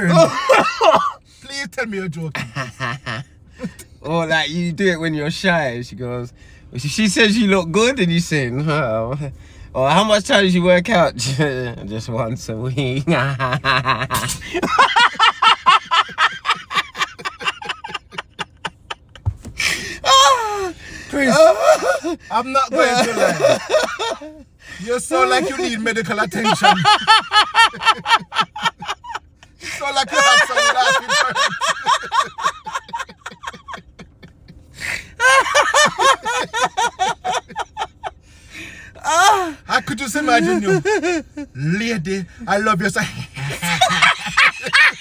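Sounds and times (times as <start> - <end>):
man laughing hard: 0.0 - 1.2, 13.1 - 24.4, 25.2 - 38.2, 40.2 - 41.5, 43.1 - 45.0.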